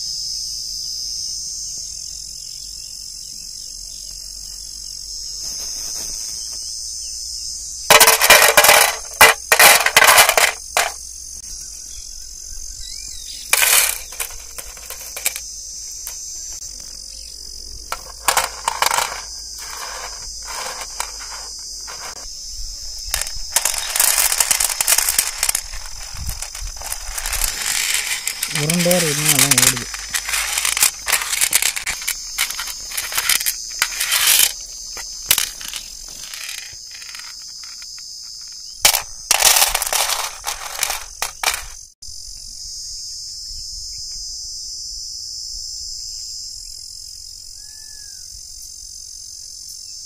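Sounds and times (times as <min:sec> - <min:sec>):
crickets chirping: 0:00.0 - 0:50.0
dry pieces rattling onto metal plate: 0:07.9 - 0:11.0, 0:13.5 - 0:15.4, 0:17.9 - 0:22.2, 0:23.0 - 0:41.8
plastic bags rustling: 0:23.2 - 0:34.5.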